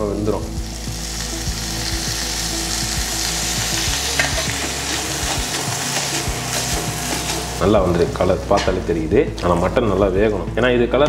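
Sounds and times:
meat sizzling in a pan: 0.0s - 10.2s
steel spoon scraping a pan: 3.3s - 8.7s.

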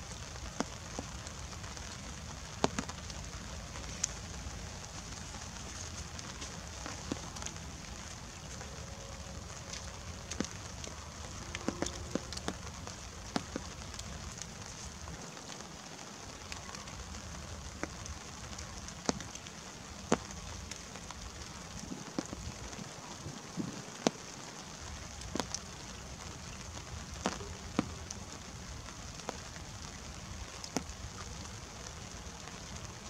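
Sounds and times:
rain drops ticking: 0.0s - 33.0s
steady rain hiss: 0.0s - 33.0s.

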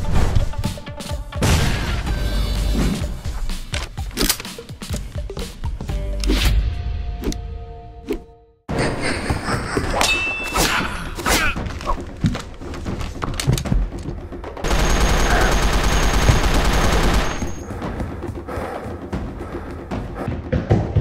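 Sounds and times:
full-auto blaster burst: 14.7s - 17.6s.

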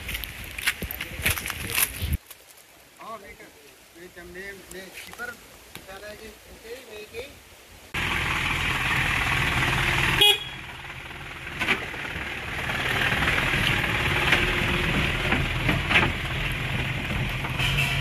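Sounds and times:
truck engine running: 8.0s - 18.0s
truck horn toot: 10.1s - 10.8s, 17.5s - 18.0s.

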